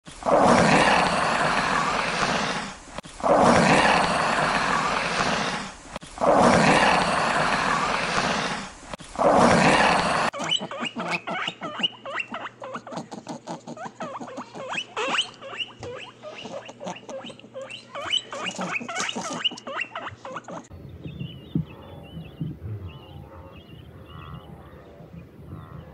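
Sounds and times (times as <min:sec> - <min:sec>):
guinea pigs squeaking and chirping: 0:10.3 - 0:24.5.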